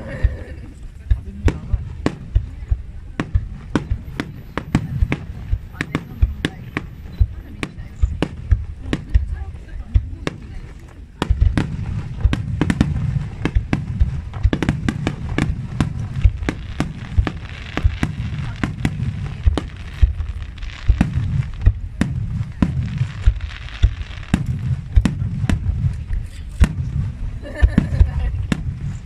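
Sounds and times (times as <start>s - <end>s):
crackling sizzle of firework stars: 0.0s - 29.0s
firework shells booming: 0.0s - 29.0s
low rumble: 0.0s - 29.0s.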